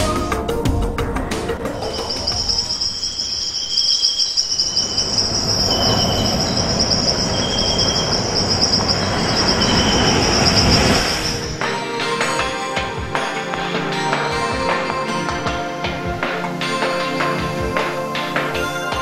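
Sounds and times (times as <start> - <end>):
insects trilling: 1.6 - 11.6
lower insect chirps: 1.7 - 11.6
surf breaking: 4.7 - 12.5.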